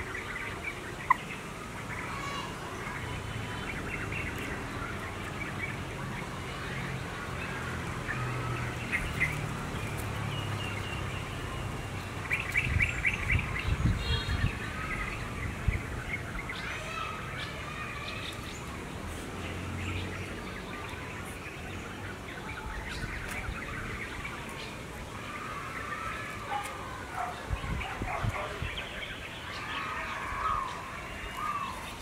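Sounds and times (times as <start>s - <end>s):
small birds chirping: 0.0s - 32.0s.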